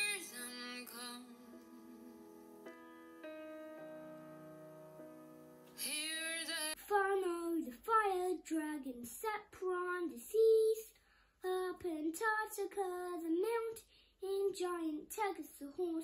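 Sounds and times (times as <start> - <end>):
woman singing unaccompanied: 0.0 - 2.3, 5.8 - 10.8
piano chord: 0.0 - 6.8.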